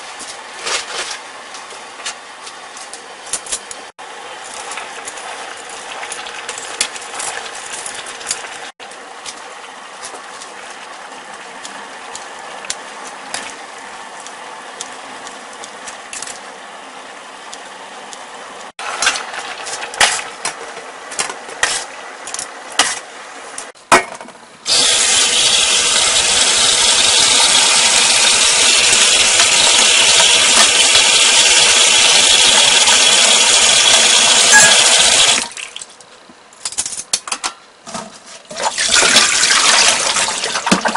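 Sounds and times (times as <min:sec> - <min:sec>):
tap water rushing into sink: 0:24.7 - 0:35.6, 0:38.6 - 0:40.9
clanks and splashes into colander: 0:38.5 - 0:40.9.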